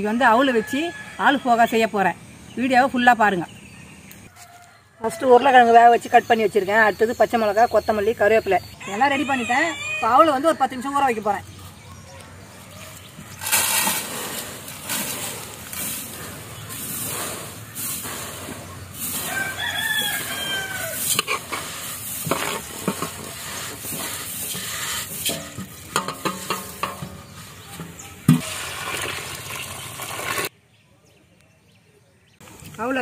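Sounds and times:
rooster crowing: 0.4s - 1.7s, 4.3s - 5.6s, 8.8s - 10.8s, 19.0s - 21.1s
water pouring: 13.4s - 20.1s, 28.2s - 30.5s
rice flakes poured into pot: 13.4s - 25.3s, 28.4s - 30.5s.

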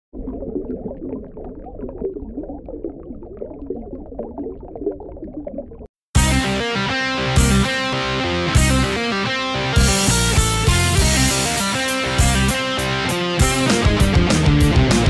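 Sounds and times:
water bubbling and gurgling: 0.1s - 6.0s
rock music with electric guitar: 6.2s - 15.0s.

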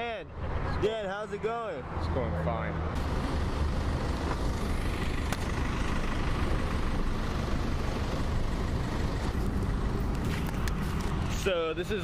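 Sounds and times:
street traffic noise: 0.0s - 12.0s
truck engine rumbling: 2.5s - 12.0s.

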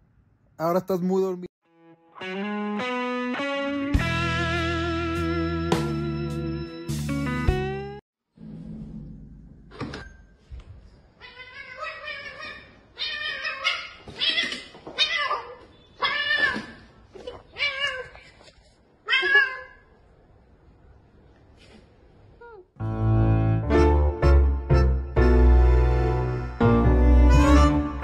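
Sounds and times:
cat meowing: 11.2s - 18.2s, 19.0s - 19.9s.

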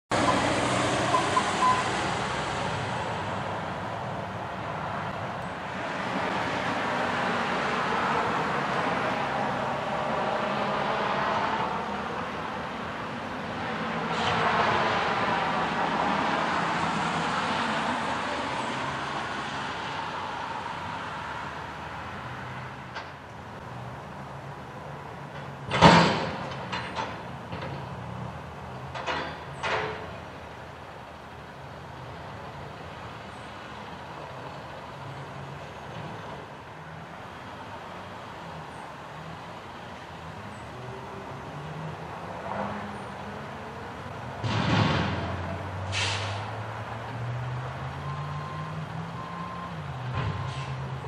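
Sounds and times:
garbage truck diesel engine: 0.1s - 51.0s
short high beeps: 0.2s - 1.9s.

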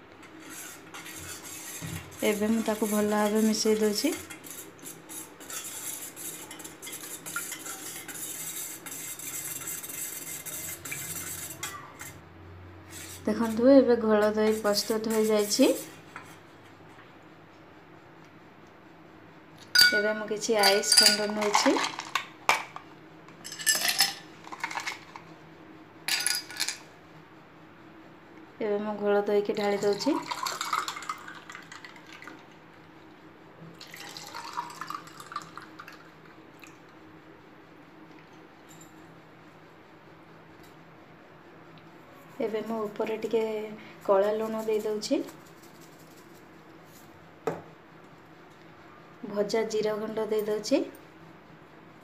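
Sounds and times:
whisk clinking in metal pot: 0.4s - 12.2s, 19.8s - 22.2s
ice clinking in glasses: 19.8s - 20.0s, 20.6s - 21.6s.

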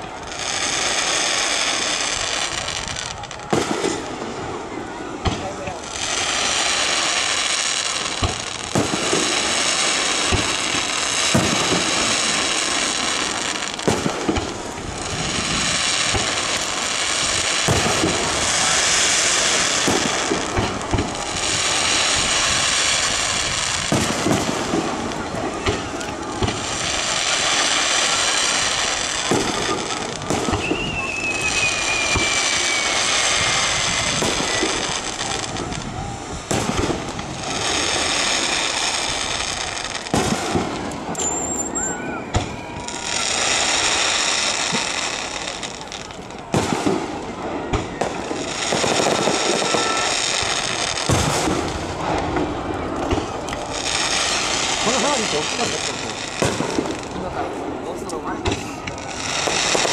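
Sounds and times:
falling firework whistle: 0.0s - 57.7s, 58.4s - 59.9s
fireworks bangs: 0.0s - 59.9s
fireworks crackling hiss: 0.0s - 59.9s.

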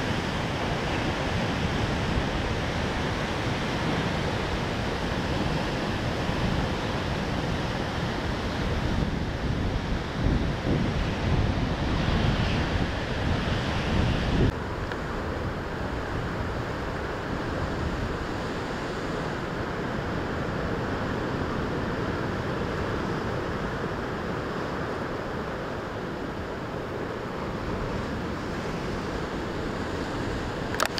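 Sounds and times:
heavy ocean surf breaking: 0.0s - 30.9s
surf washing against rocks: 0.0s - 30.9s
wind rumbling on microphone: 0.0s - 30.9s.

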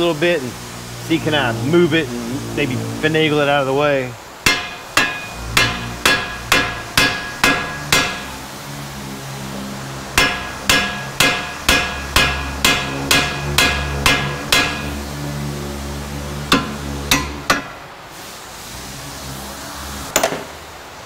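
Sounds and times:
hammer striking metal: 4.4s - 8.4s, 10.2s - 15.2s, 16.5s - 17.8s.

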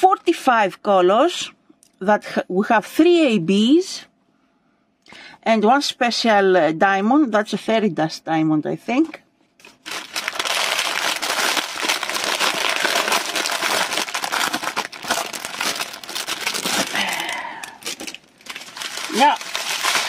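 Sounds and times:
plastic bag crinkling: 9.6s - 20.0s.

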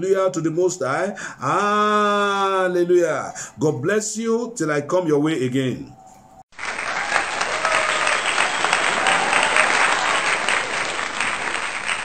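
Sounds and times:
crowd applauding: 6.5s - 12.0s.

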